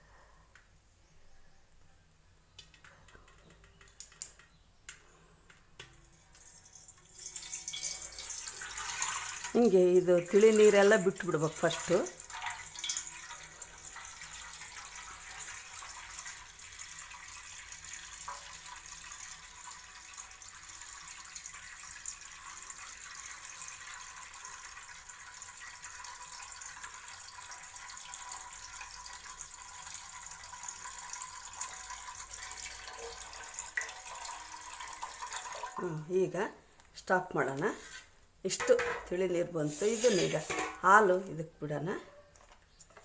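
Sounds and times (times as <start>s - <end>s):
thin stream of liquid into metal pot: 6.2s - 35.8s, 39.6s - 40.9s.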